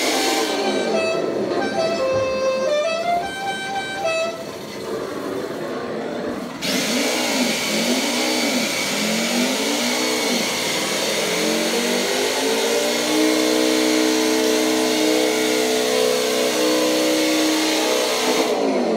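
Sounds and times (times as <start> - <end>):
hiss: 0.0 - 1.1, 6.4 - 18.7
toy car engine sound revving: 0.0 - 18.9.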